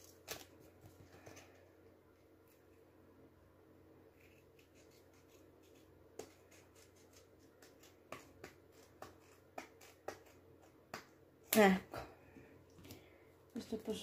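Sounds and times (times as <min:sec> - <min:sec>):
scissors snipping paper: 0:04.2 - 0:11.6.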